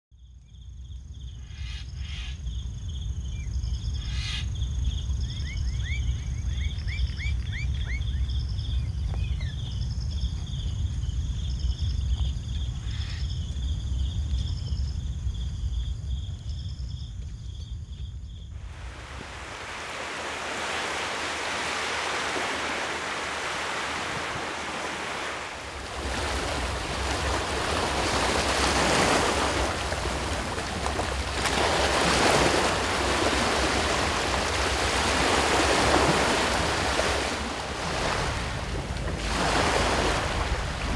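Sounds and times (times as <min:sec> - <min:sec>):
small waves breaking on beach: 0:18.6 - 0:40.9.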